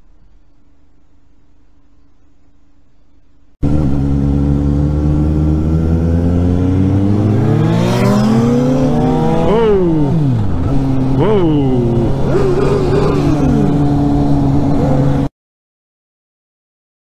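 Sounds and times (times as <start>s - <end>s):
motorcycle engine accelerating: 3.6s - 15.3s.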